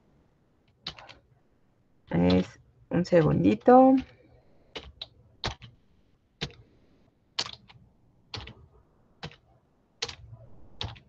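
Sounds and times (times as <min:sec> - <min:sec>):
keyboard keystrokes: 0:00.8 - 0:01.2, 0:04.0 - 0:05.8, 0:07.4 - 0:08.6.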